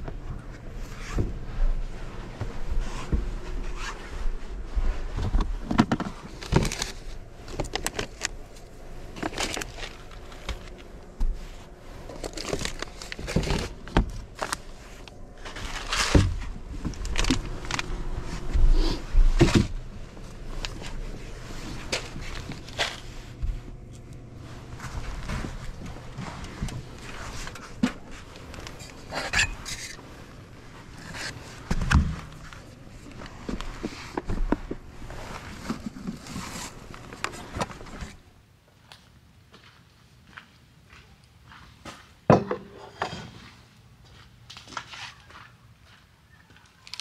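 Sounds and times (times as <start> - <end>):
objects knocking and clunking: 5.2 - 8.3, 42.3 - 43.4
packaging crinkling and rustling: 5.4 - 18.6, 19.2 - 38.2, 46.7 - 47.0.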